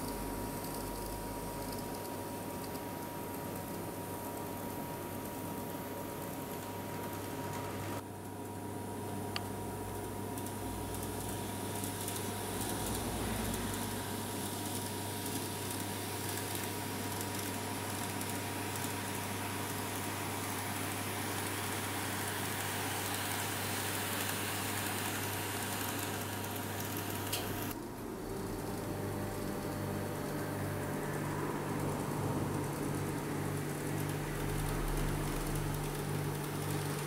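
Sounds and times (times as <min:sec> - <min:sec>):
model train whirring and rumbling: 0:21.6 - 0:27.7.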